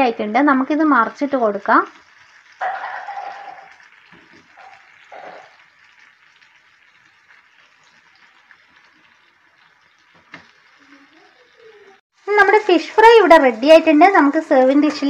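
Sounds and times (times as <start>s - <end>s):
fish sizzling in oil: 0.0s - 15.0s.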